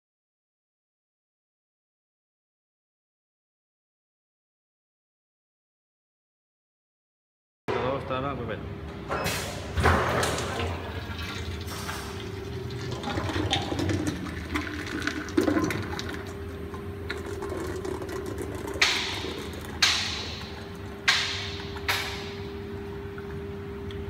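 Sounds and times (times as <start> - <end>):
machinery humming: 10.4 - 24.0.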